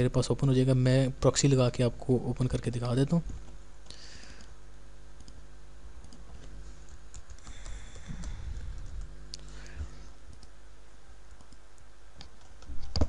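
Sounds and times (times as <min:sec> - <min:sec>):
steady low hum: 0:00.0 - 0:13.0
typing on keyboard: 0:06.9 - 0:09.0.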